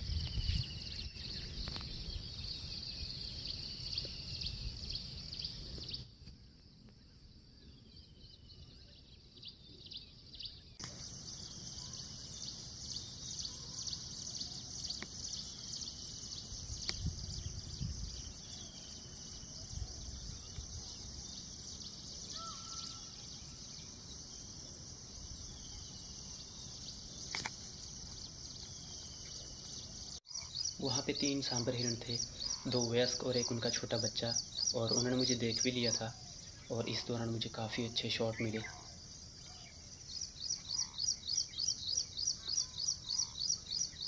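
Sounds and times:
high-pitched insect drone: 0:10.8 - 0:33.6
falling bird calls: 0:10.8 - 0:44.0
low wind rumble: 0:15.5 - 0:22.2
sharp clicks: 0:27.3 - 0:27.7.

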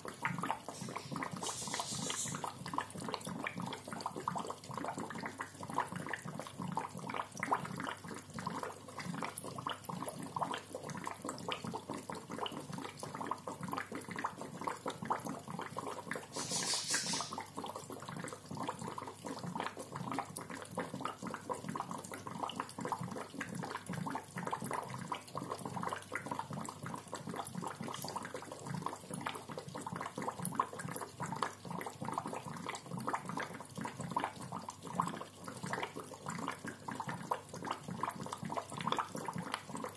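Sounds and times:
aquarium bubbler gurgling: 0:00.0 - 0:39.9
short hiss: 0:00.7 - 0:02.5, 0:16.3 - 0:17.4.

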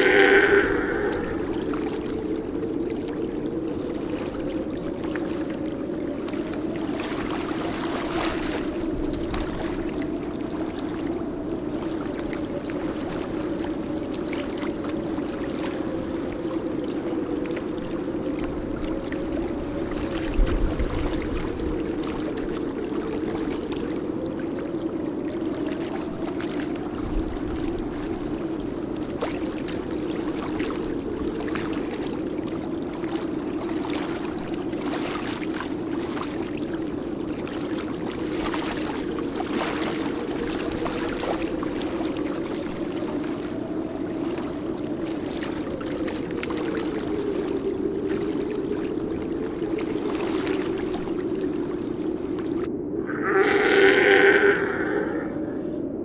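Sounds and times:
wavering tone: 0:00.0 - 0:02.6
steady low drone: 0:00.0 - 0:03.2
water noise: 0:00.0 - 0:56.0.

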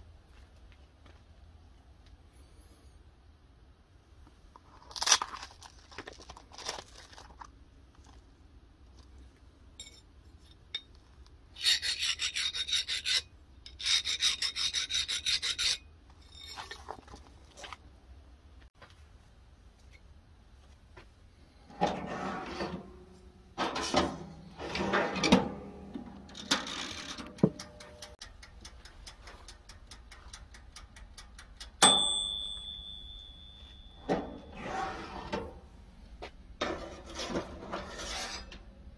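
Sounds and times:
file scraping steel blade: 0:11.5 - 0:16.8, 0:34.5 - 0:35.5, 0:36.6 - 0:38.7
clockwork timer ticking: 0:27.0 - 0:31.9
sharp metal clink: 0:31.7 - 0:34.5
timer bell ding: 0:31.8 - 0:34.2.

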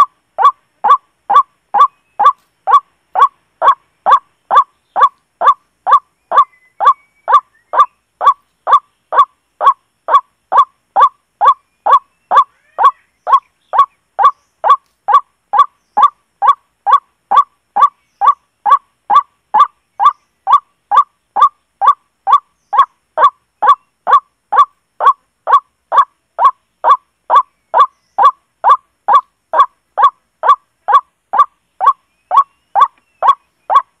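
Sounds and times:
bird call from speaker: 0:11.4 - 0:14.4.

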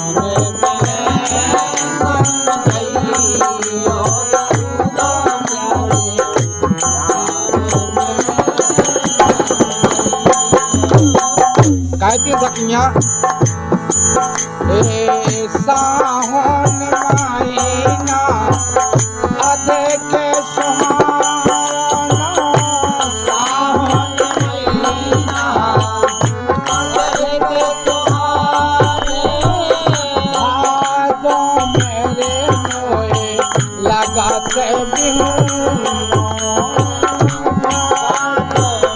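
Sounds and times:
voices singing: 0:00.0 - 0:12.9, 0:13.9 - 0:38.9
hand cymbals jingling: 0:00.0 - 0:15.1, 0:16.0 - 0:38.9
dholak drum: 0:00.0 - 0:38.9
harmonium: 0:00.0 - 0:38.9.

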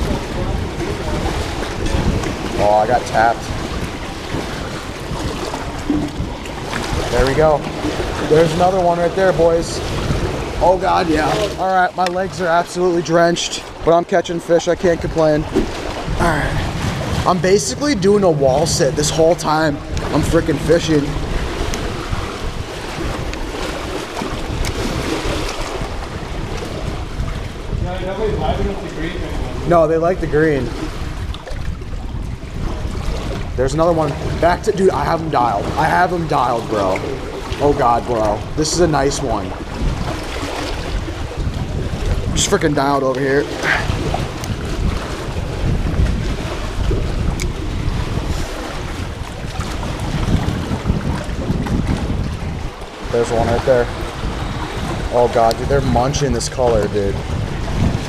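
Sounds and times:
water lapping and splashing: 0:00.0 - 0:58.0
wind buffeting microphone: 0:00.0 - 0:58.0.

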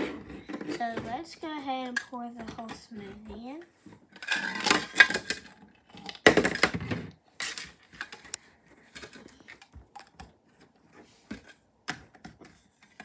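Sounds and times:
plastic toy pieces clattering: 0:04.1 - 0:10.3.

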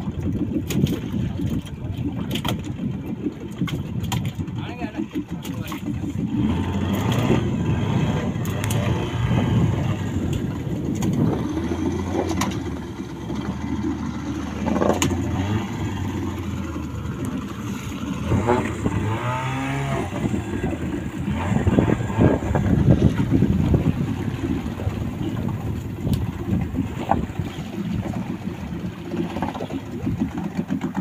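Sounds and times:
wind noise: 0:00.0 - 0:30.5
boat engine humming: 0:00.0 - 0:31.0
water noise: 0:00.0 - 0:31.0.

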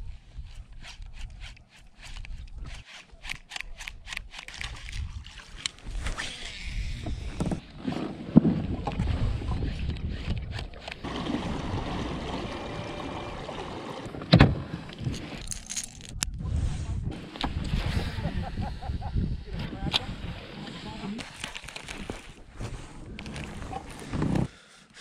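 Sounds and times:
wind buffeting microphone: 0:08.5 - 0:13.0, 0:16.0 - 0:20.6
water noise: 0:10.9 - 0:15.4.

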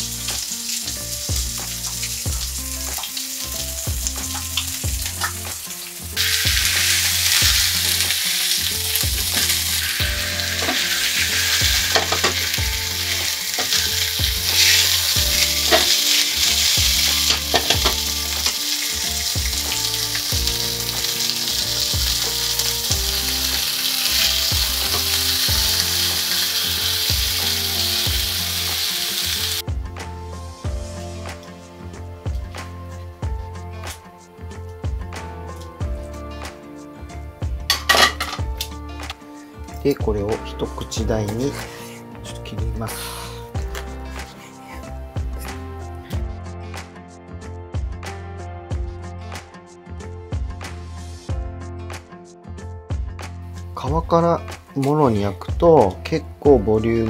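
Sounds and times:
chicken sizzling in a pan: 0:00.0 - 0:29.6.

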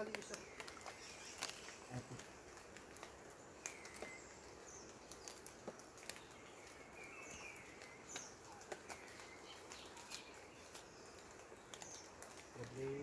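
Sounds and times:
faint bird chirps: 0:00.0 - 0:13.0
light clicks and rustles: 0:00.0 - 0:13.0.

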